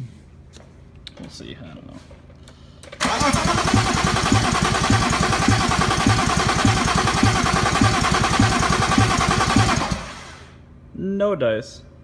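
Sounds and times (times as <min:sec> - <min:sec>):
engine cranking with starter motor: 0:03.0 - 0:10.5.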